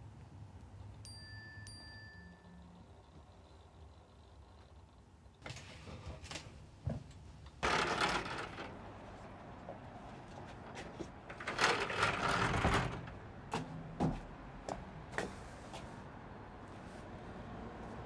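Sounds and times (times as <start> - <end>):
sliding glass door rolling: 7.6 - 9.3, 9.9 - 13.2.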